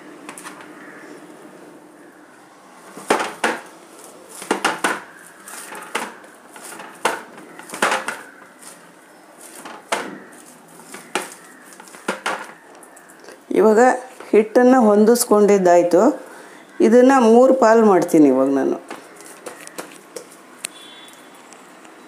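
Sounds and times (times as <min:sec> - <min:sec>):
hands kneading dough: 0:02.9 - 0:14.5.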